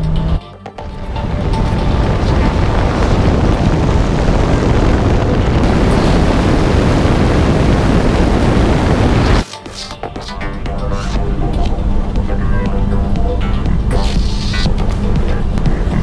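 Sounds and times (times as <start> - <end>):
wind rushing on microphone: 0.8 - 9.4.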